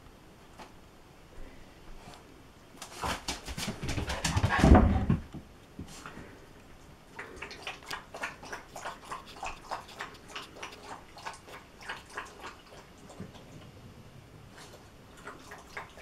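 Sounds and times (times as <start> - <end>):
dog lapping water: 7.2 - 13.7, 14.6 - 16.0.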